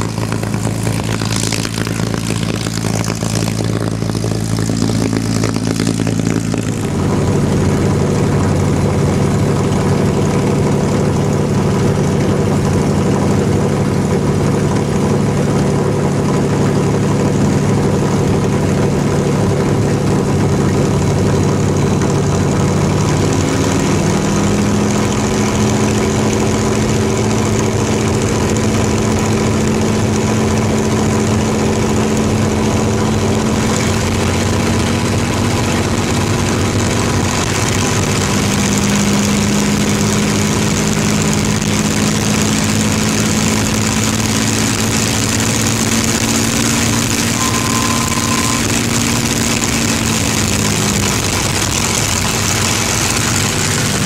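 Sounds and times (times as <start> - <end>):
propeller plane engine idling: 0.0 - 54.0.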